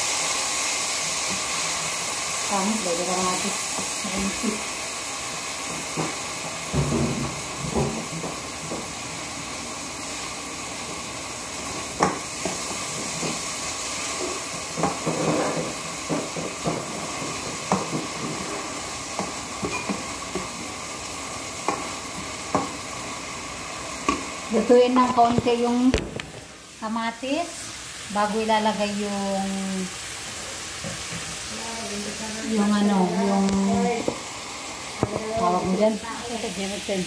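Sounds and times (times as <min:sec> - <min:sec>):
vegetables sizzling in frying pan: 0:00.0 - 0:37.0
spatula scraping a pan: 0:14.0 - 0:20.5.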